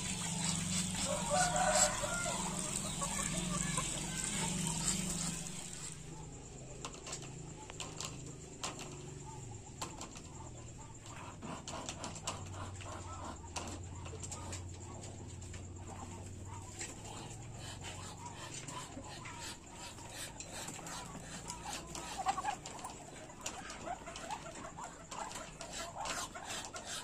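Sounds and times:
water trickling into a pond: 0.0 - 6.2
faint duck sounds: 0.0 - 27.0.

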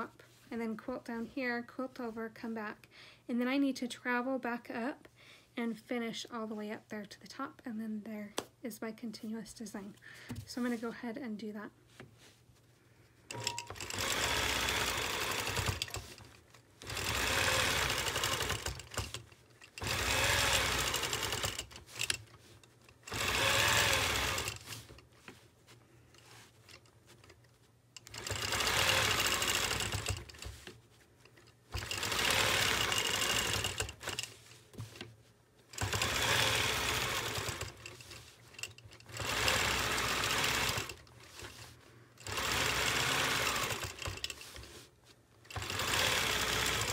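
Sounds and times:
quilting machine stitching: 13.3 - 25.4, 26.1 - 35.1, 35.7 - 46.9.

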